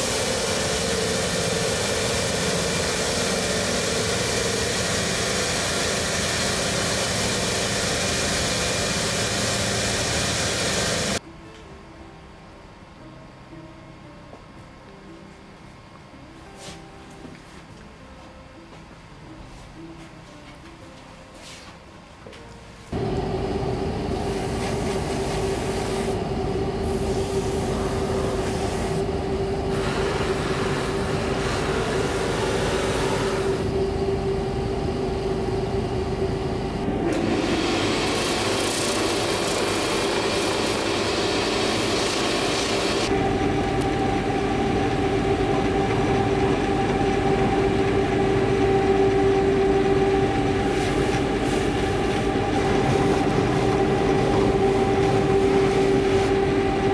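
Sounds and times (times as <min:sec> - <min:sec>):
buffing machine humming: 0:00.0 - 0:11.2, 0:23.0 - 0:56.9
higher machine hum: 0:00.0 - 0:11.2, 0:22.9 - 0:56.9.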